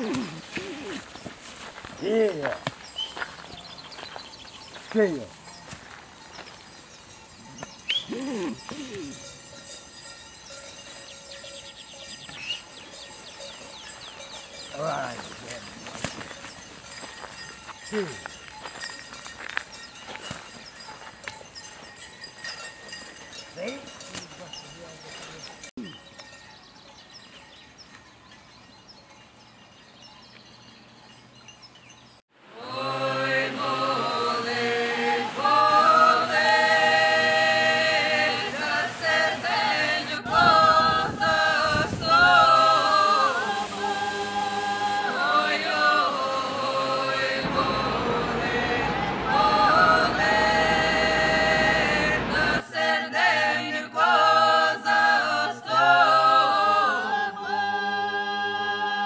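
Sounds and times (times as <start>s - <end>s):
faint outdoor ambience: 0.0s - 59.0s
a cappella choir singing: 32.4s - 59.0s.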